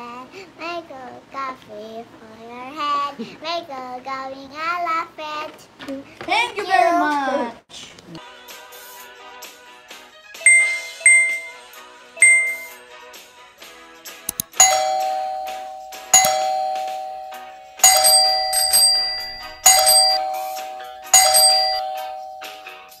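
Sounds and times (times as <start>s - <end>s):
brief ding: 10.5s - 11.6s, 12.2s - 12.8s, 14.6s - 22.8s
two-tone bell chimes: 10.5s - 12.8s, 14.6s - 23.0s
quick clicks: 14.3s - 14.6s.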